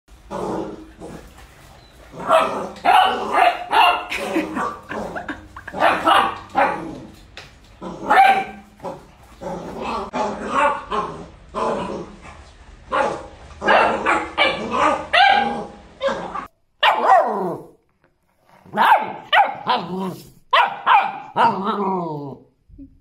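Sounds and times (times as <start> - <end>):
puppies barking and yapping: 1.2 - 6.8, 12.9 - 17.2.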